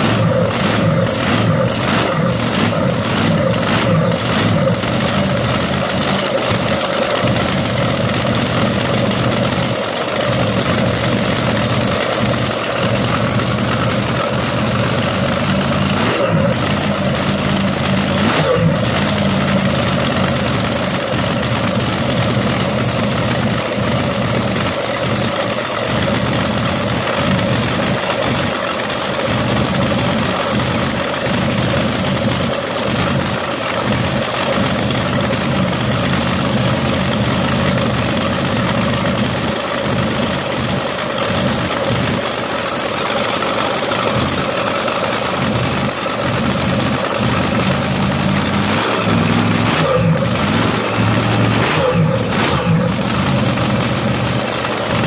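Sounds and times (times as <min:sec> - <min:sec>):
loud boat engine running: 0:00.0 - 0:55.0.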